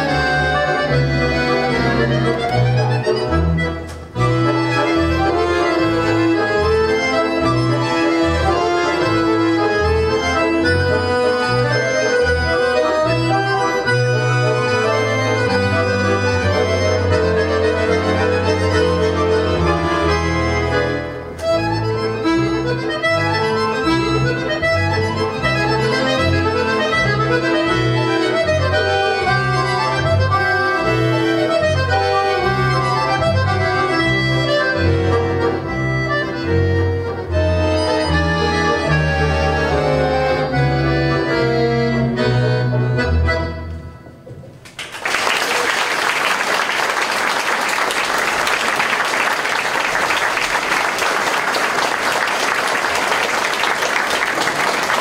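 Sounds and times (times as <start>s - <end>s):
accordions playing a tune: 0.0s - 44.6s, 45.9s - 55.0s
audience applause: 44.7s - 55.0s.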